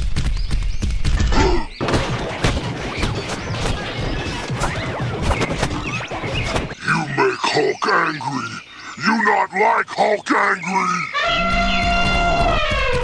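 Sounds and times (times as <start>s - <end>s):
cartoon crashes thuds and whacks: 1.8s - 6.7s.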